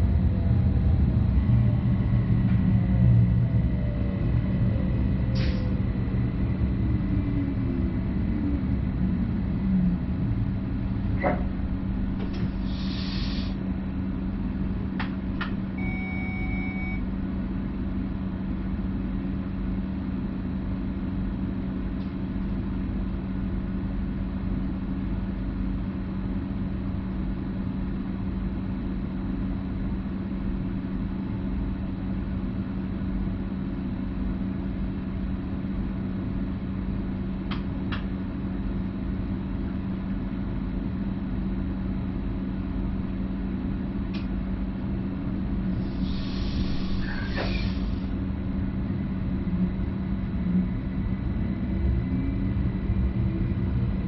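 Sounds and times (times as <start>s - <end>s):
electric train hum and rumble: 0.0s - 54.0s
short electronic beep: 15.8s - 17.0s.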